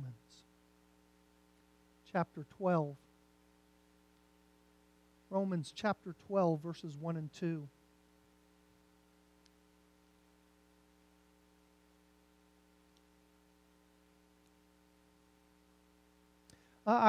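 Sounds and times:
faint electrical hum: 0.0s - 17.0s
faint ticks: 9.4s - 9.6s, 12.9s - 13.2s, 14.4s - 14.6s.

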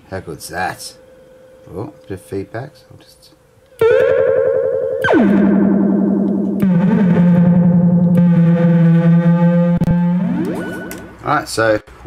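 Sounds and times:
buzzy low synth drone: 3.8s - 10.9s
repeating echoes of sweep: 3.8s - 11.2s
synth siren sweeping down: 3.8s - 11.2s.

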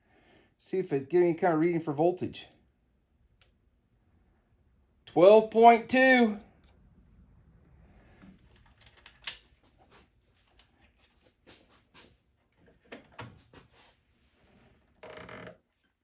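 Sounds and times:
rustling scrape: 13.4s - 14.9s.

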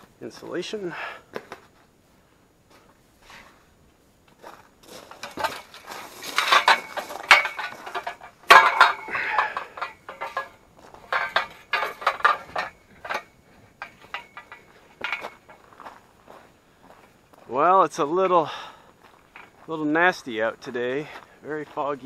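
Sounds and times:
metal bolts and tubes clinking: 5.1s - 15.9s.

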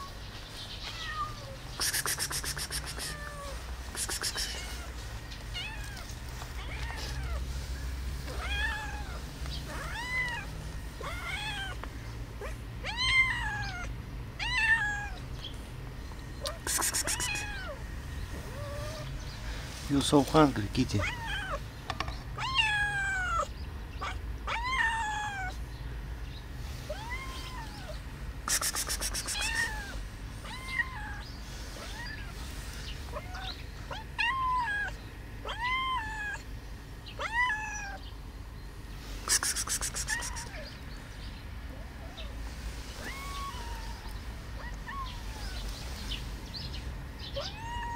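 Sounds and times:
cat meowing: 0.8s - 1.6s, 2.3s - 7.5s, 8.3s - 11.8s, 12.4s - 15.2s, 16.4s - 17.8s, 20.9s - 21.6s, 22.4s - 25.6s, 26.9s - 28.0s, 28.8s - 31.2s, 33.1s - 36.4s, 37.2s - 38.1s, 39.3s - 40.7s, 43.0s - 45.6s, 47.3s - 47.9s.

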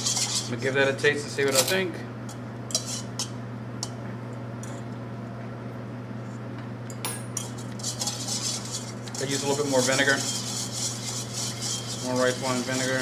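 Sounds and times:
whisk scraping bowl: 0.0s - 0.7s, 2.7s - 3.3s, 7.4s - 13.0s
steady low hum: 0.0s - 13.0s
whisk clicking against metal bowl: 7.4s - 13.0s.

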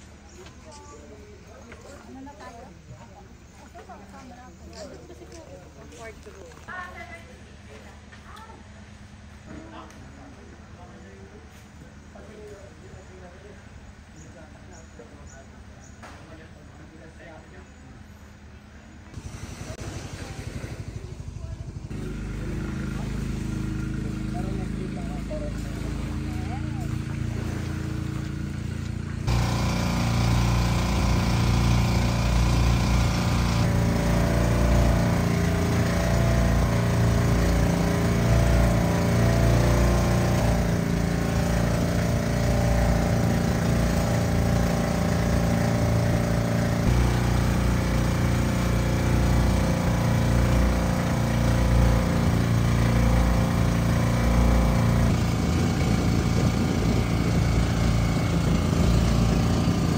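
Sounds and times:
motor engine droning: 18.0s - 59.9s.

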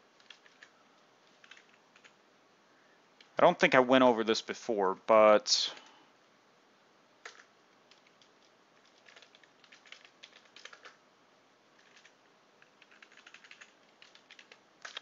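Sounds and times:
keyboard typing: 0.2s - 2.2s, 7.2s - 11.0s, 11.8s - 15.0s.

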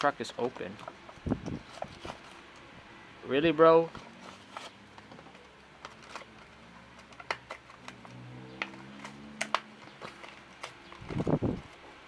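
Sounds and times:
plastic blister pack crackling: 3.9s - 11.8s.

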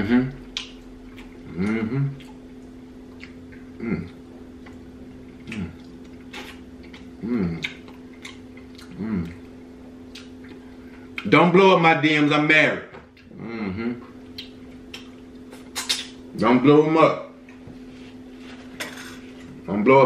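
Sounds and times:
steady low hum: 0.0s - 20.0s
man chewing and lip-smacking: 0.3s - 11.3s, 13.1s - 16.3s
man humming mm: 1.4s - 2.3s, 3.7s - 4.2s, 5.4s - 6.5s, 7.2s - 7.8s, 8.9s - 9.4s, 13.3s - 14.1s.

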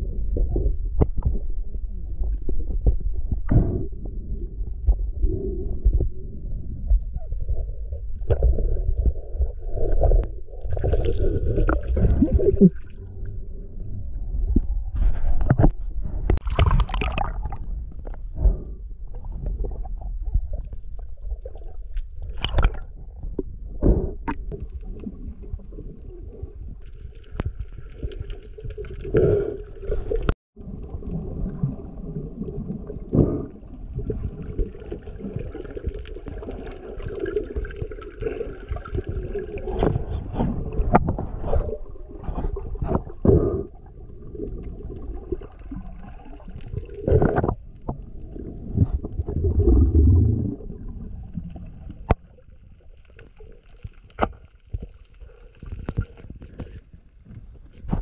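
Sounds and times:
underwater knocks and thumps: 0.0s - 12.9s, 14.4s - 21.0s, 38.8s - 43.7s, 44.6s - 51.1s
underwater water rushing: 7.4s - 18.6s, 24.2s - 56.8s.

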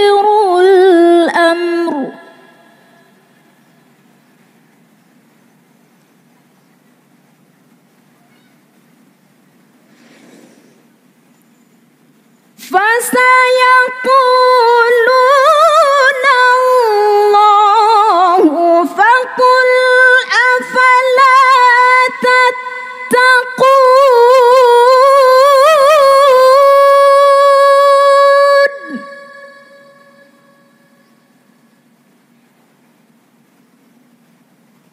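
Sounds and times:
woman reciting melodically: 0.0s - 3.3s, 12.6s - 31.0s.

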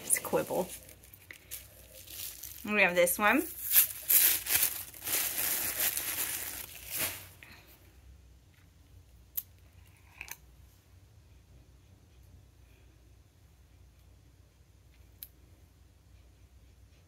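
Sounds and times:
paper rustling and crinkling: 0.0s - 7.5s.

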